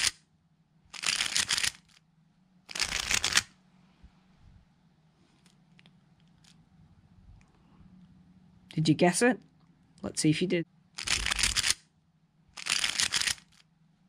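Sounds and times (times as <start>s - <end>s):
puzzle cube turning clicks: 0.9s - 2.0s, 2.7s - 3.5s, 11.0s - 11.8s, 12.6s - 13.6s.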